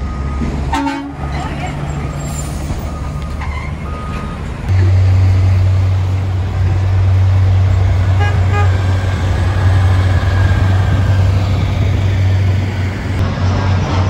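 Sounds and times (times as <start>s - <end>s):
truck engine drone: 0.0s - 14.0s
truck horn toots: 0.7s - 1.4s, 8.0s - 9.0s.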